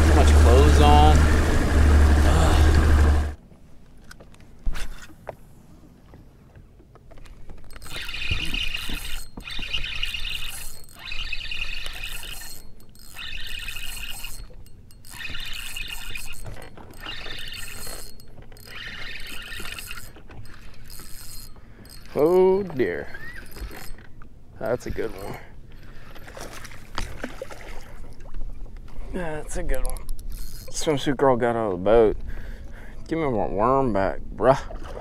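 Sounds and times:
spinning reel cranking: 7.5 - 24.1, 24.7 - 26.4, 29.8 - 31.1.

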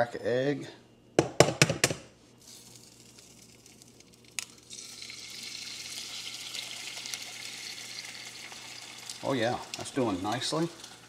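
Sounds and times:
egg sizzling in a pan: 2.4 - 11.0.

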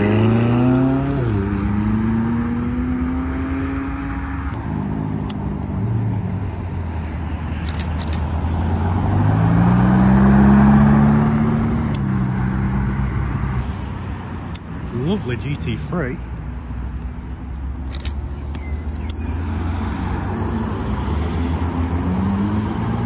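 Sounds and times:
sports car engines driving past: 0.0 - 15.8, 16.7 - 23.0
engine gear change: 17.8 - 19.3.

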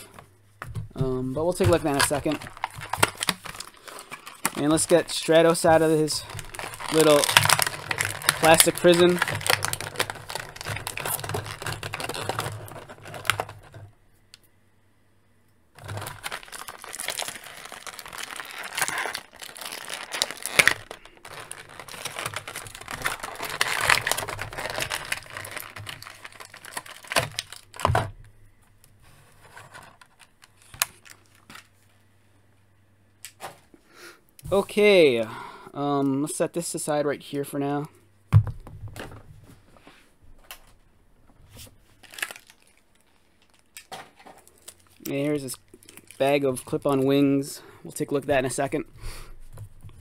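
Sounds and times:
plastic packaging crinkling: 1.0 - 14.0, 15.8 - 28.4, 29.3 - 31.9, 41.7 - 48.8.

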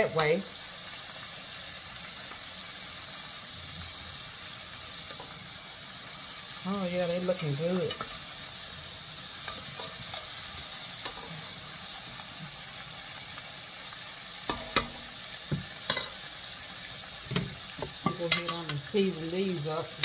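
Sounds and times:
deep-frying sizzle in hot oil: 0.0 - 20.0
metal spoon clinking on pot: 14.5 - 15.1, 18.0 - 18.7.

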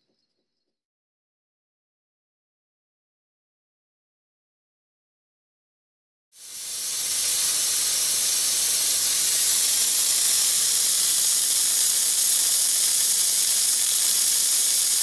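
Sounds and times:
electric fogger spraying hiss: 6.4 - 15.0.

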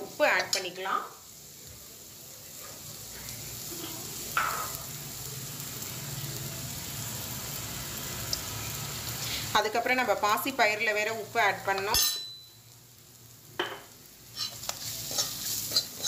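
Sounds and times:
onions frying in oil: 0.0 - 16.0
steel ladle scraping: 14.3 - 16.0.

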